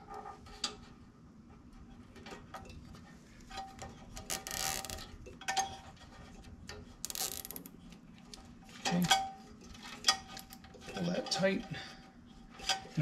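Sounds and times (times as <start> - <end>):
zip tie ratcheting: 4.3 - 5.0, 7.0 - 7.7.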